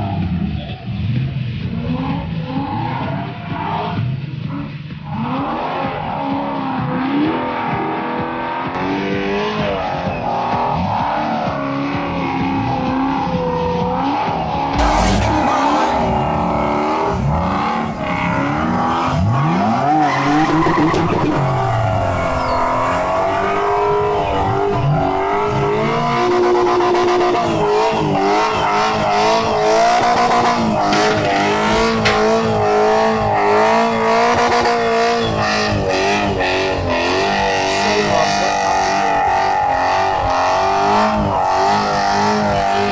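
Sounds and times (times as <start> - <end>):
car engine revving: 1.4 - 42.9.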